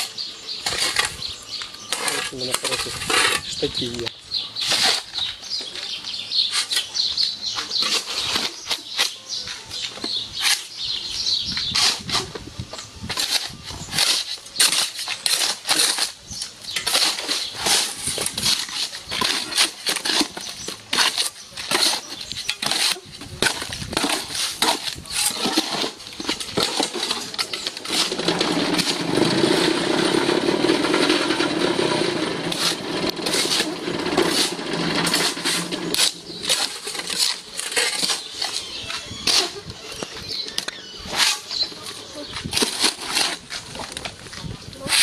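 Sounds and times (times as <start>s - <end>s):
shovel scraping in wheelbarrow: 0.0s - 45.0s
steady rumbling noise: 23.1s - 38.5s.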